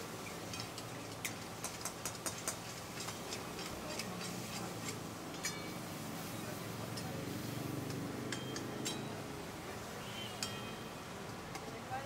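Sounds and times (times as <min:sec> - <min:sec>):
metal spoon clinking in a pan: 0:00.2 - 0:05.9, 0:08.2 - 0:09.3, 0:10.2 - 0:11.7.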